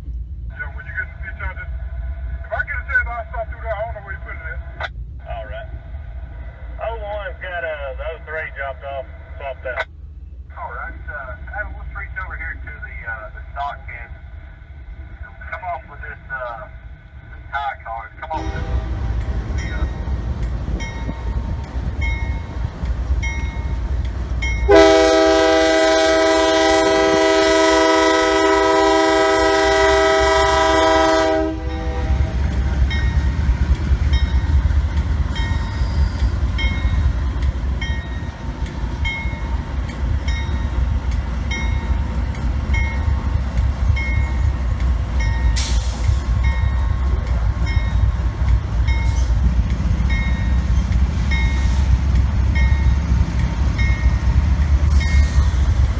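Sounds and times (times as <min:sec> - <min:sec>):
diesel engines and rolling cars: 0:00.0 - 0:55.9
crossing bell dinging: 0:18.3 - 0:25.2, 0:30.4 - 0:45.7, 0:46.4 - 0:51.8, 0:52.5 - 0:55.8
train air horn blast: 0:18.4 - 0:19.2, 0:24.7 - 0:32.4.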